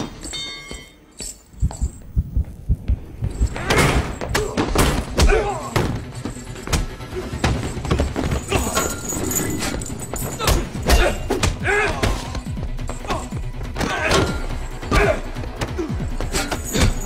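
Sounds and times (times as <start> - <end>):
film score music: 0.0 - 17.0
grunts: 10.3 - 12.4, 13.0 - 17.0.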